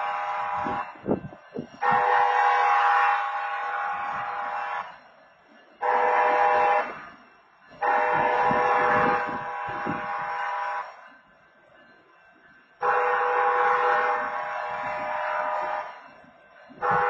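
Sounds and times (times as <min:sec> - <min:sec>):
locomotive air horn blasts: 0:00.0 - 0:04.9, 0:05.8 - 0:07.1, 0:07.8 - 0:11.0, 0:12.8 - 0:15.9, 0:16.8 - 0:17.0.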